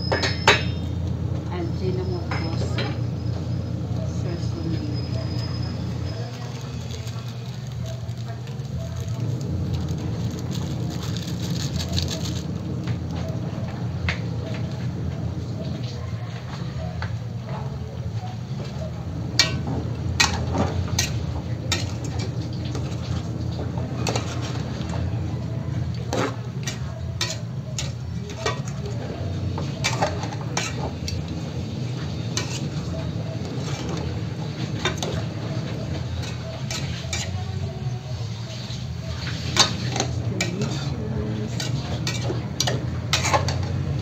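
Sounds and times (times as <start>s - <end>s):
spoon clinking in metal pot: 0.0s - 1.0s, 26.6s - 28.9s.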